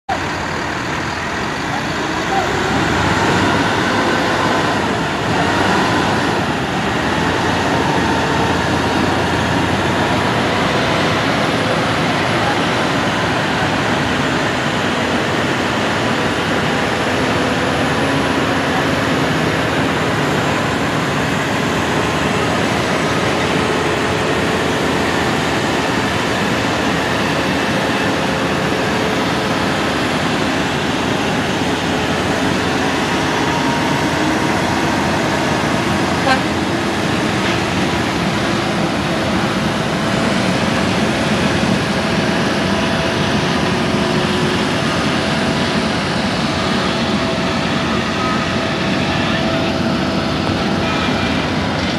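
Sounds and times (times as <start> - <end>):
diesel truck engines under load: 0.0 - 51.9
road noise: 0.0 - 51.9.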